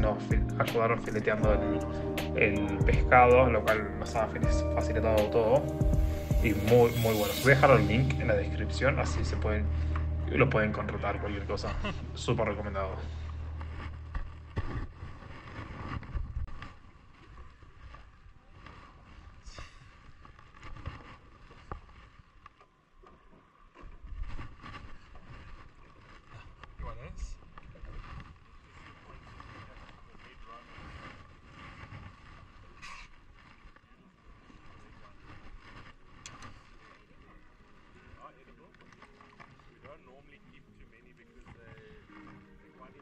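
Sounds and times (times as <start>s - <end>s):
boat motor rumbling: 7.6s - 15.4s
wind on microphone: 13.8s - 16.8s.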